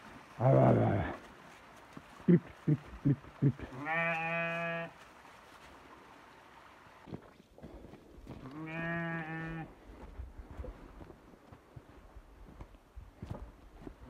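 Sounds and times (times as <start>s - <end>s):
sheep bleating: 3.6s - 5.0s, 8.4s - 9.7s
footsteps on dry leaves: 3.7s - 6.4s.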